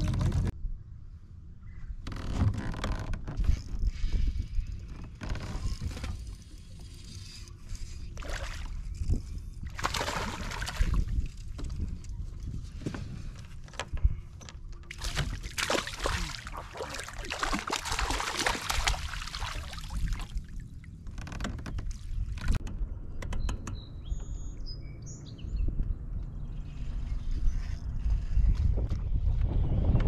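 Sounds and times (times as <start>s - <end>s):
wind rumbling on microphone: 0.0s - 30.0s
water splashing and sloshing: 4.9s - 22.6s
fish thrashing at surface: 9.7s - 11.1s, 14.9s - 20.2s
bird chirping: 23.0s - 27.6s.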